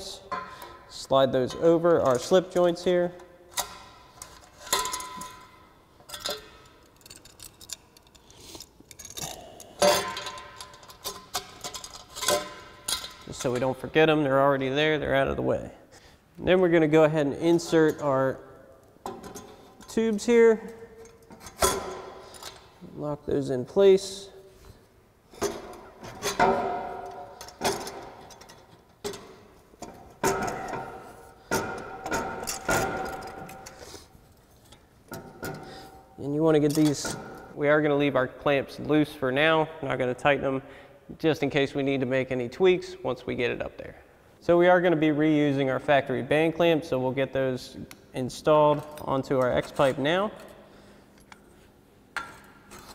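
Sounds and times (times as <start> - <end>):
metal pipes knocking and clinking: 0.0 - 8.2, 8.9 - 13.8, 19.0 - 22.7, 25.3 - 34.0, 34.6 - 37.6
metal tubing clinking and ringing: 3.5 - 8.3.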